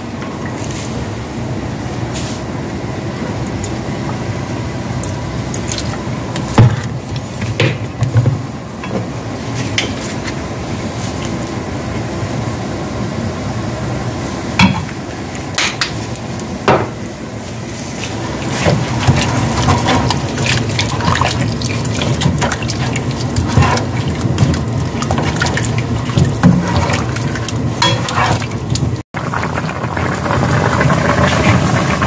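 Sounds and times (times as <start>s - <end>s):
wooden spoon scraping a pan: 18.4s - 28.6s.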